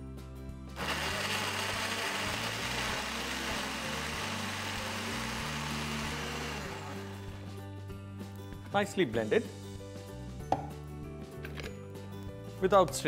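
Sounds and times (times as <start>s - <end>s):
blender running: 0.8s - 7.5s.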